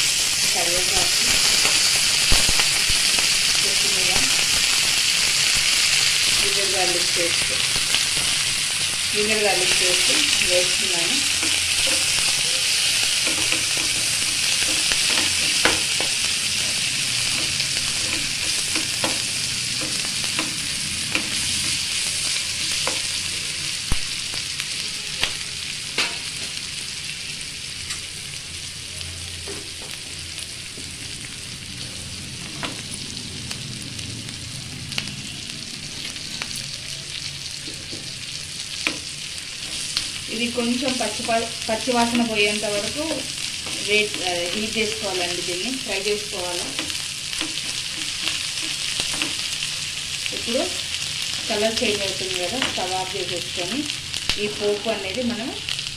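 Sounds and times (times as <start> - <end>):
food sizzling in hot oil: 0.0 - 55.9.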